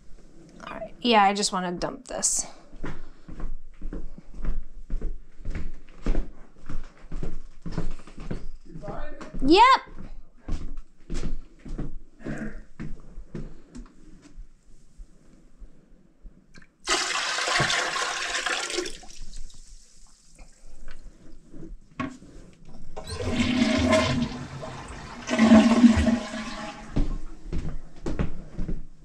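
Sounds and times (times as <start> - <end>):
water splashing into toilet: 16.8 - 20.2, 23.0 - 27.2.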